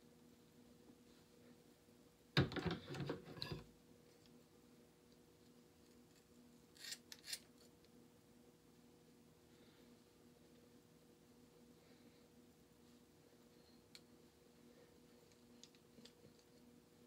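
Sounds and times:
faint steady hum: 0.0s - 17.0s
scissors cutting hair: 6.8s - 7.6s.

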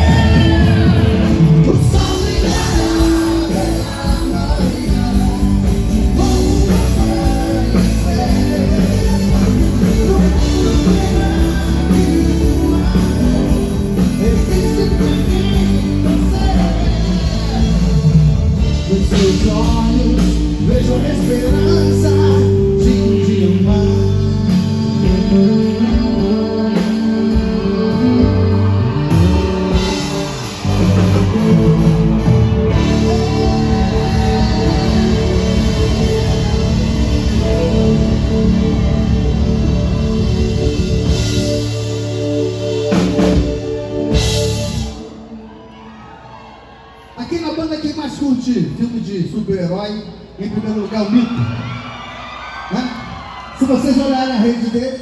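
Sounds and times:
man singing into microphone: 0.0s - 18.2s, 18.8s - 29.8s, 32.7s - 36.6s
rock band playing: 0.0s - 55.0s.

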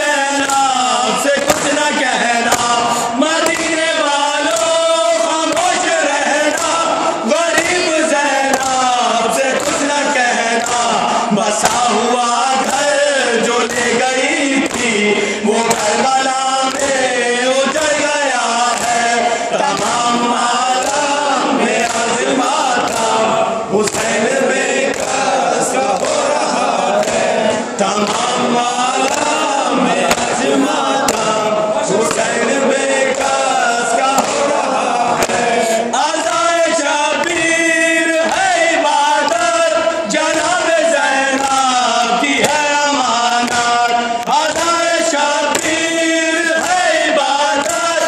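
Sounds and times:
men chanting through a microphone: 0.0s - 48.0s
chest-beating slaps: 0.4s - 17.1s, 18.6s - 36.4s, 45.4s - 47.0s.

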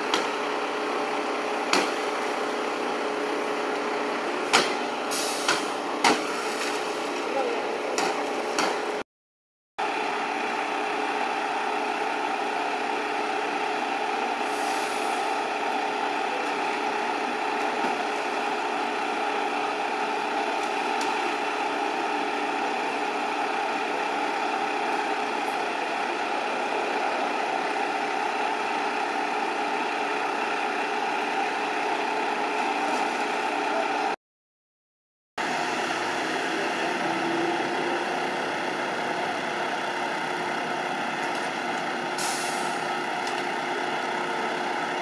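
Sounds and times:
engine idling: 9.8s - 34.1s.

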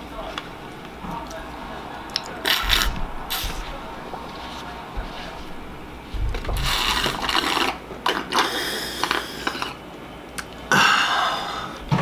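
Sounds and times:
slurping milk from a bowl: 2.4s - 3.6s, 6.5s - 9.8s.

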